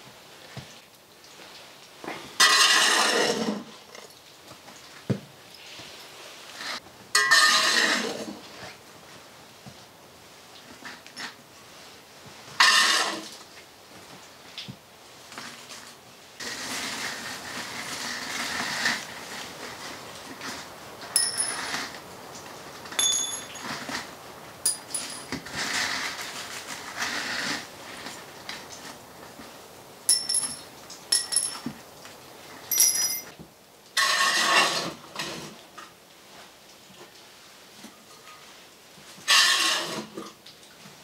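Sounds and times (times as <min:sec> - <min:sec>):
rustle: 0:00.0 - 0:41.0
metal scoop scraping ash: 0:02.4 - 0:03.7, 0:06.6 - 0:08.5, 0:12.6 - 0:13.3, 0:21.2 - 0:22.0, 0:22.9 - 0:24.1, 0:24.7 - 0:28.1, 0:34.0 - 0:35.6, 0:39.2 - 0:40.1
ringing metal clinks: 0:21.2 - 0:21.6, 0:23.0 - 0:23.8, 0:24.6 - 0:25.3, 0:30.1 - 0:31.6, 0:32.7 - 0:33.3.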